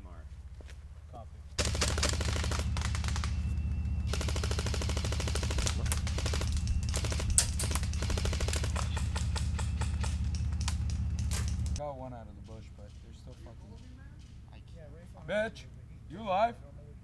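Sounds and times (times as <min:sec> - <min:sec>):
airsoft guns firing full auto: 0:01.6 - 0:11.8
sharp gun cracks: 0:04.1 - 0:11.8.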